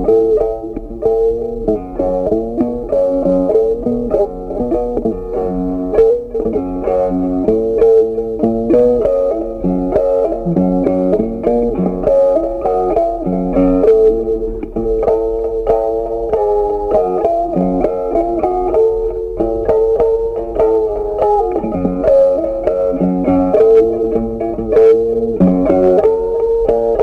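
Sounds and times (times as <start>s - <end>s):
bass notes: 0.0s - 27.0s
plucked guitar-like melody: 0.0s - 27.0s.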